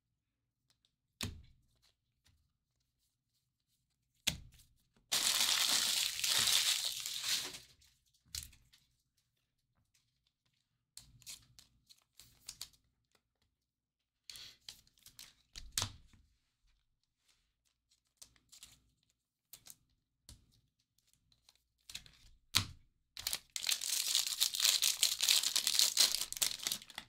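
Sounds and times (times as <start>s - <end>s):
foil wrapper tearing: 5.1s - 7.6s, 23.2s - 27.0s
foil crinkling and rustling: 5.1s - 7.7s, 23.2s - 27.0s.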